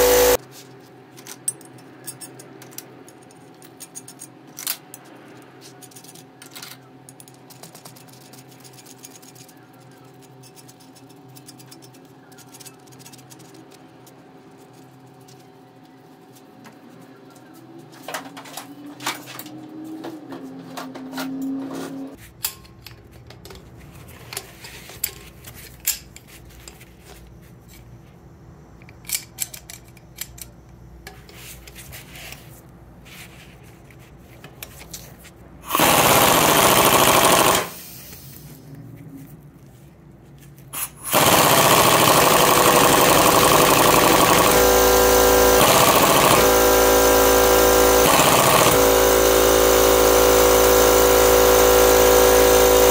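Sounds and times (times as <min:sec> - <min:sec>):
impact wrench hammering: 0:00.0 - 0:00.4, 0:35.7 - 0:37.8, 0:40.8 - 0:52.9.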